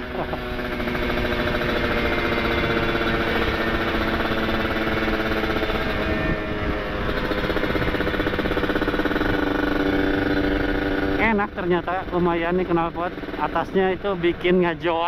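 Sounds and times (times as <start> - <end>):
motorcycle engine running hard: 0.0 - 15.0
rider talking: 11.1 - 15.0.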